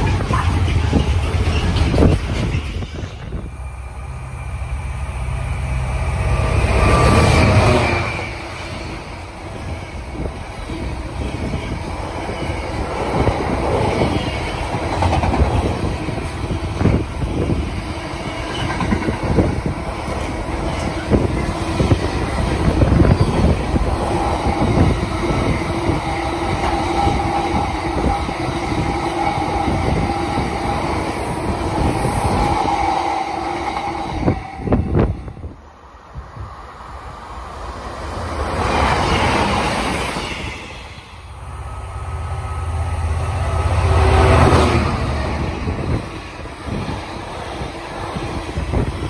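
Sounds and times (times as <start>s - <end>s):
freight train wheels rumbling: 0.0s - 49.0s.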